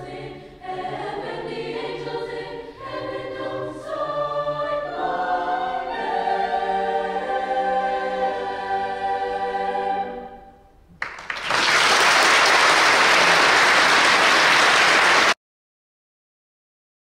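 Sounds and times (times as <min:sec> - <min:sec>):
choir holding a chord: 0:00.0 - 0:10.8
loud applause: 0:11.0 - 0:15.4.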